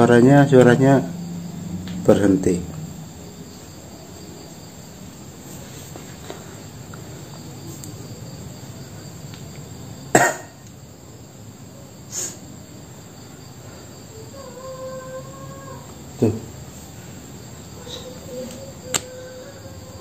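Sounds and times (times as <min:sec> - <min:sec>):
crickets chirping: 0:00.0 - 0:20.0
person coughing: 0:10.1 - 0:10.6.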